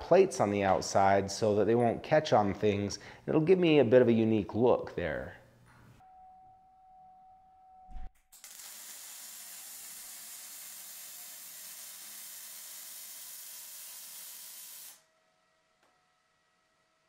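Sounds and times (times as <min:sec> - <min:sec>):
welding arc hissing: 0:08.4 - 0:15.0.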